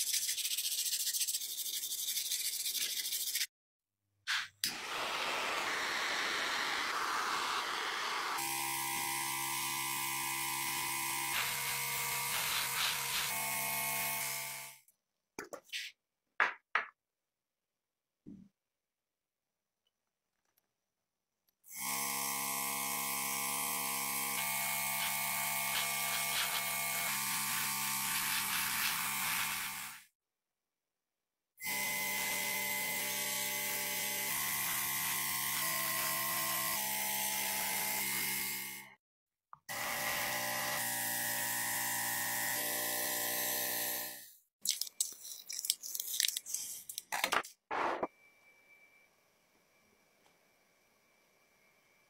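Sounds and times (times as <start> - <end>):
paper crinkling: 44.6 - 47.5.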